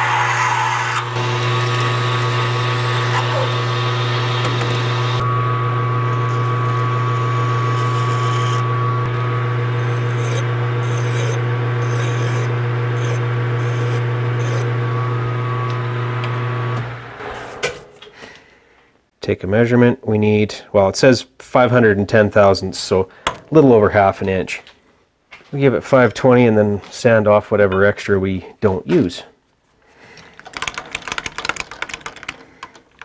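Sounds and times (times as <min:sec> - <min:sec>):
metal lathe motor hum: 0:00.0 - 0:17.3
hand tool scraping metal part: 0:09.8 - 0:14.7.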